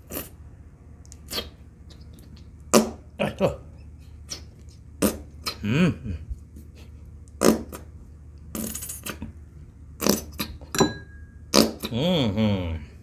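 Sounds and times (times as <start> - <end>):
squeeze bottle sputtering and squirting: 8.5 - 9.3.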